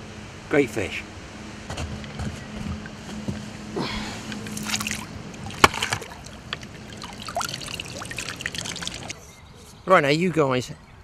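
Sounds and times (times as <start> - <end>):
water sloshing and splashing: 4.4 - 9.2.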